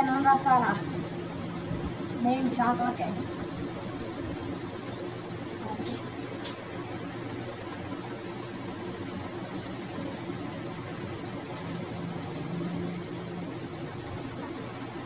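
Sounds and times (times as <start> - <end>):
steady low hum: 0.0 - 15.0.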